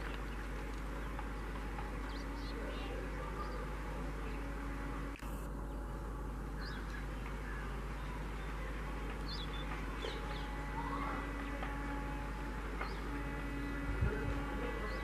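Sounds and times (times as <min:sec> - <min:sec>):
birds chirping: 0:00.0 - 0:15.0
distant diesel locomotive drone: 0:00.0 - 0:15.0.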